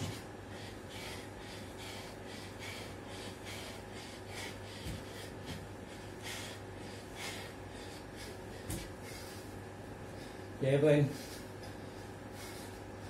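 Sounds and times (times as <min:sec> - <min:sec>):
man breathing hard: 0:00.0 - 0:13.0
bare feet thudding on tiles: 0:04.7 - 0:05.8, 0:08.6 - 0:09.3.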